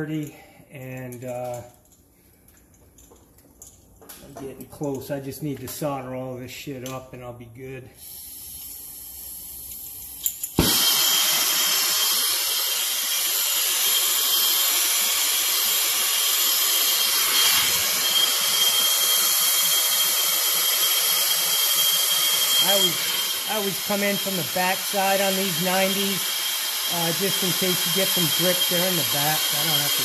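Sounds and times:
torch flame hissing: 0:10.6 - 0:30.0.

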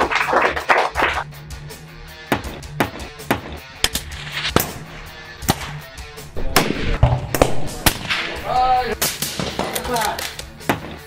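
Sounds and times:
background music: 0:00.0 - 0:11.0
rifle shots echoing: 0:06.4 - 0:09.8.

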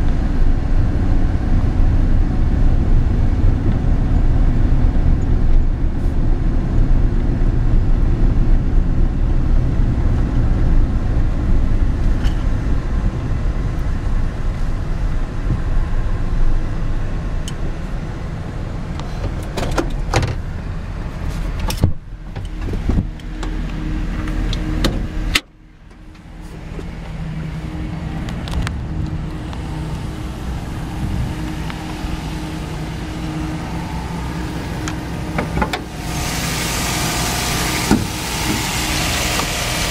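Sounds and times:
truck engine and road rumble: 0:00.0 - 0:39.9
truck engine idling: 0:00.0 - 0:39.9.

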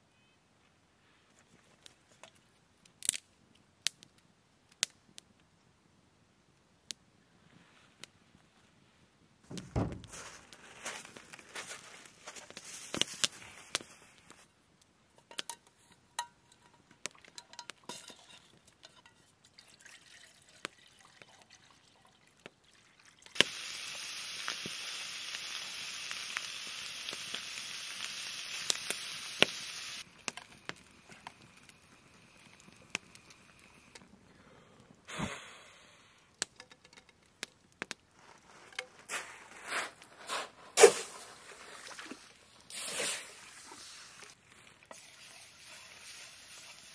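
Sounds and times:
campfire crackling and popping: 0:02.2 - 0:05.5, 0:09.5 - 0:21.6, 0:22.3 - 0:40.2
dull thump: 0:09.5 - 0:10.3
bacon sizzling in frying pan: 0:23.4 - 0:30.6.

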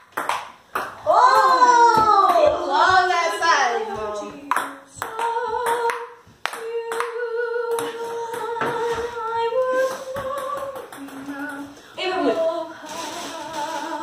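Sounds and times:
girl singing long notes: 0:03.8 - 0:14.0.

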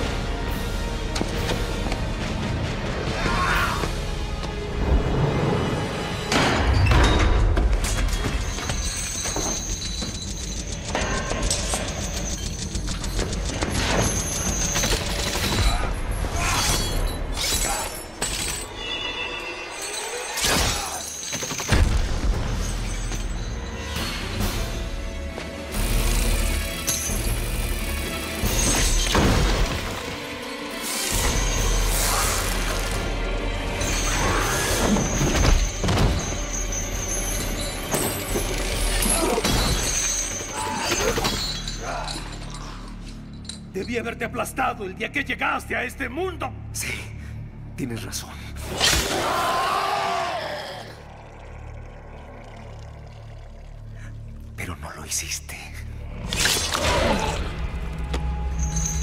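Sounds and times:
dramatic orchestral score: 0:00.0 - 0:59.0
chains clanking: 0:08.0 - 0:21.8, 0:22.5 - 0:25.1, 0:33.6 - 0:44.1, 0:58.5 - 0:59.0.

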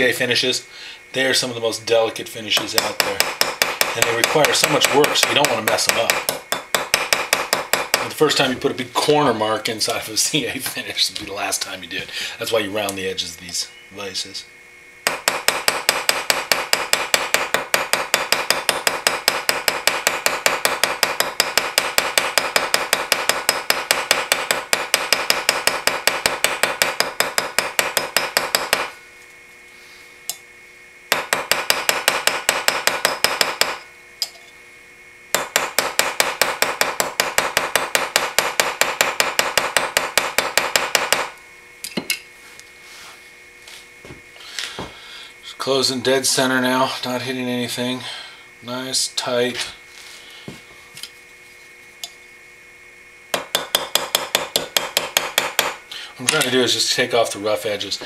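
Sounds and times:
small hammer tapping on metal: 0:15.1 - 0:28.9, 0:53.3 - 0:56.5.

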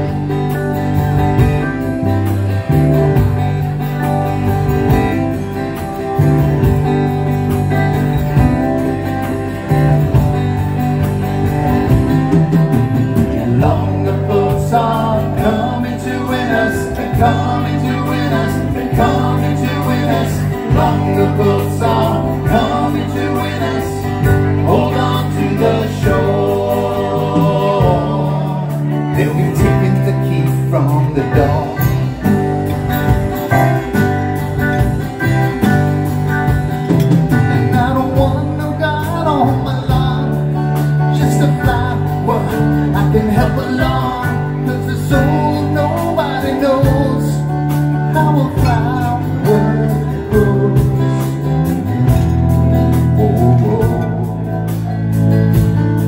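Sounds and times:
live folk-rock band: 0:00.0 - 0:56.0
person singing: 0:13.2 - 0:32.3, 0:37.3 - 0:51.8, 0:52.8 - 0:54.9.

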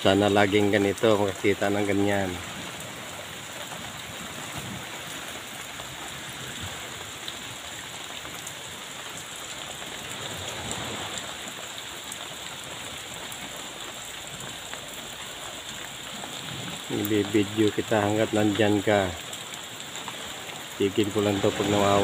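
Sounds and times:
raindrop ticks: 0:00.0 - 0:22.0
steady rain hiss: 0:00.0 - 0:22.0.

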